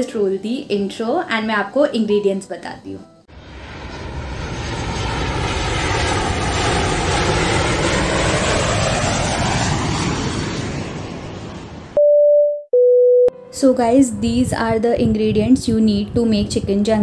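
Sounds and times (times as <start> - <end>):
airplane flying over: 3.2 - 12.0.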